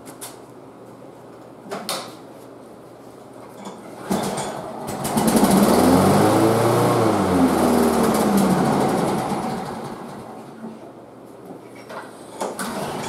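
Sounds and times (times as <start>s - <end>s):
lawn mower engine pull-started: 4.0s - 10.5s, 12.6s - 13.0s.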